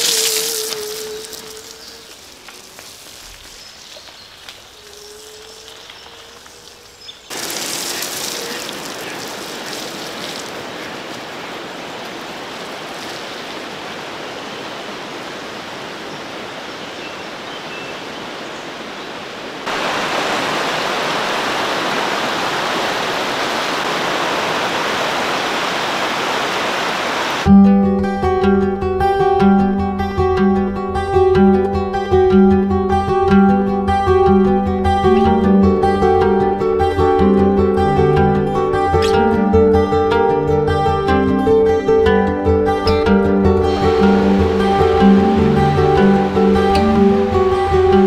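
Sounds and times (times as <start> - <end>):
rushing water: 0.0 - 27.5, 34.9 - 48.0.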